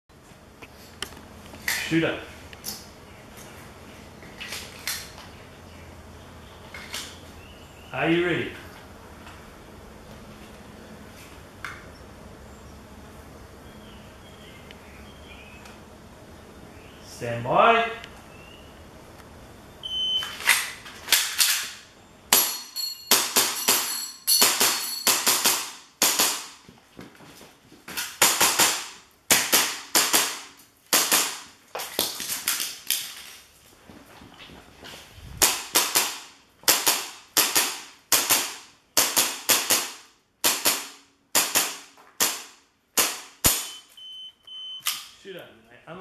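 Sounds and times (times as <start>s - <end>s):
shot timer beep: 19.8s - 20.3s, 43.6s - 44.9s
airsoft pistol shots: 22.3s - 26.6s, 28.2s - 31.5s, 35.4s - 43.8s.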